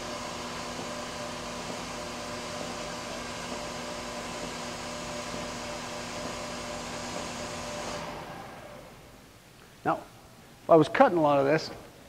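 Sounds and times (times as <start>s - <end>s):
bandsaw running: 0.0s - 9.0s.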